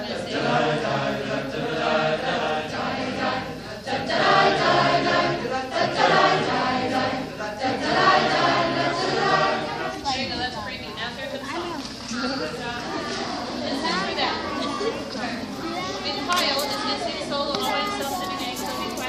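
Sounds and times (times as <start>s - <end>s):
choir singing in parts: 0.0s - 10.3s.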